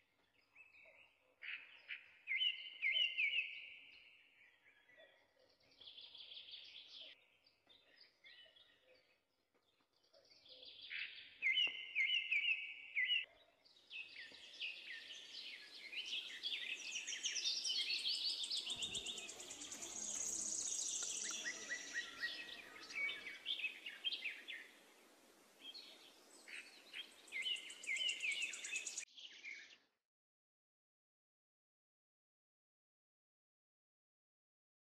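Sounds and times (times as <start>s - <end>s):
songbirds chirping and singing: 0.0s - 29.9s
high bird trill: 16.6s - 23.4s.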